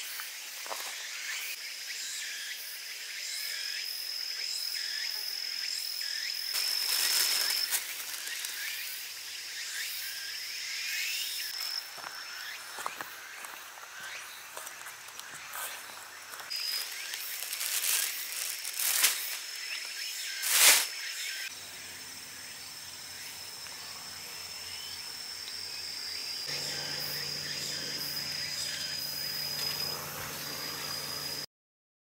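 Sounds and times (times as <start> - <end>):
high-pitched insect buzz: 0.0 - 31.5
footsteps crunching through leaves: 6.5 - 9.0, 11.6 - 20.9, 29.4 - 31.4.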